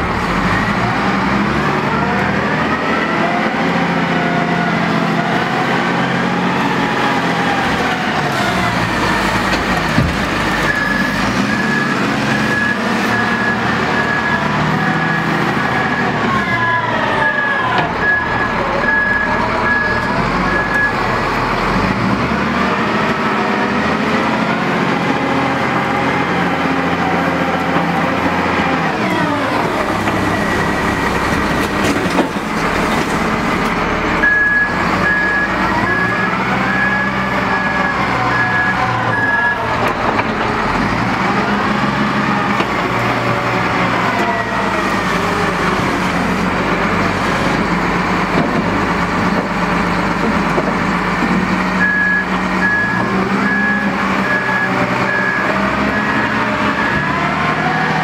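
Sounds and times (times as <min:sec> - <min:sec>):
diesel engine revving: 0:00.0 - 0:58.0
reversing alarm beeping: 0:08.8 - 0:16.2, 0:17.0 - 0:21.2, 0:34.1 - 0:39.9, 0:51.7 - 0:57.6.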